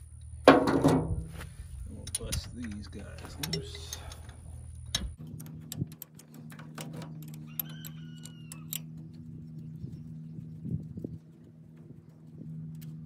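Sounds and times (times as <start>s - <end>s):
steady low hum: 0.0s - 13.0s
wrench clicking on bolts: 4.9s - 8.9s.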